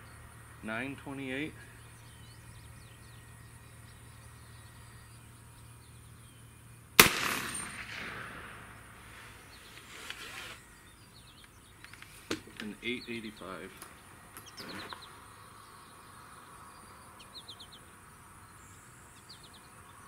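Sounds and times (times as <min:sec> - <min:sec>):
rifle shot with echo: 0:07.0 - 0:09.6.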